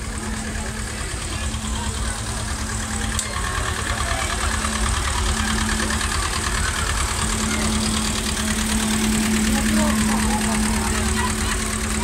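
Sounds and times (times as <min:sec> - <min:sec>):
tractor diesel engine passing: 0:00.0 - 0:12.0.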